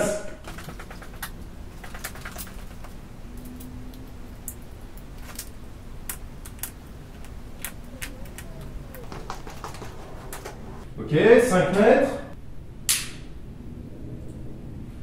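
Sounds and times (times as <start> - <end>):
footsteps: 8.1 - 10.9.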